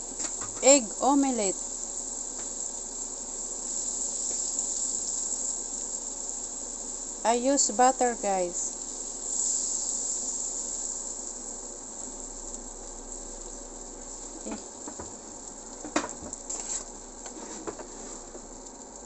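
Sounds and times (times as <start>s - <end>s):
butter sizzling in frying pan: 0.0s - 19.0s.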